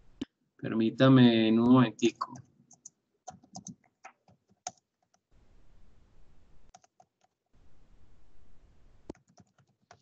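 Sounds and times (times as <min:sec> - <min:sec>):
keyboard and mouse clicks: 0:02.2 - 0:05.3, 0:06.7 - 0:07.5, 0:09.1 - 0:10.0.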